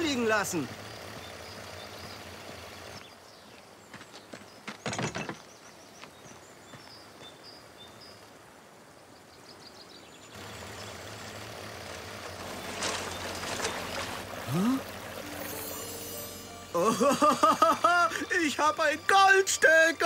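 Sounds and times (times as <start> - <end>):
water rushing through a sluice box: 10.4 - 15.4.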